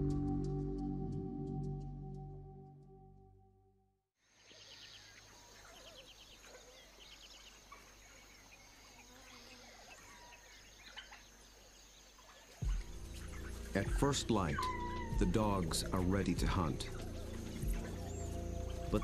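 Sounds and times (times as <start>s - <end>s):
birds chirping and trilling: 4.4s - 19.0s.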